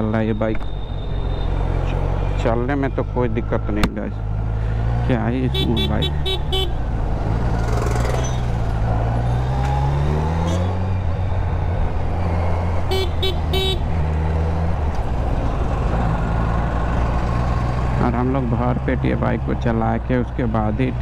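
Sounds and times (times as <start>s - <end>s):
motorcycle engine accelerating: 4.2s - 19.0s
vehicle horn toots: 5.5s - 6.8s, 12.9s - 13.8s.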